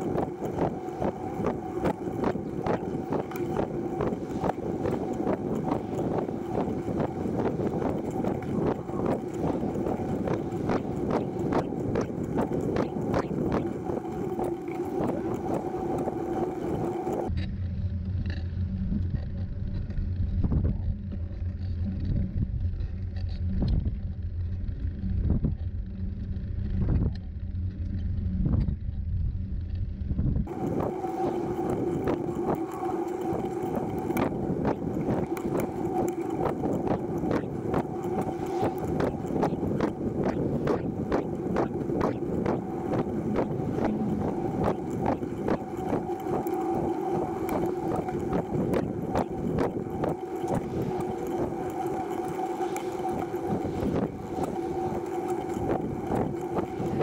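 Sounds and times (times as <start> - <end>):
tricycle rolling on pavement: 0.0 - 17.3, 30.5 - 57.0.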